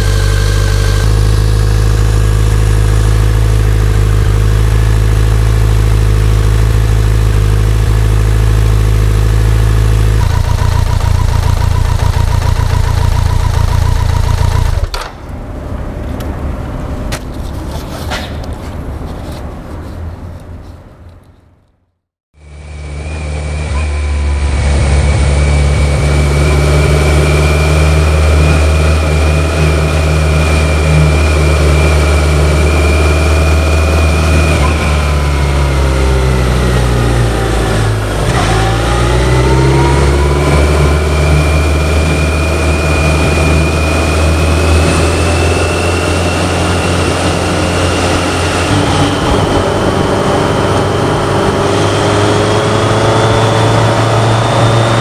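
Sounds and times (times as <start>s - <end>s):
motorcycle engine: 0.0s - 18.6s, 22.4s - 55.0s.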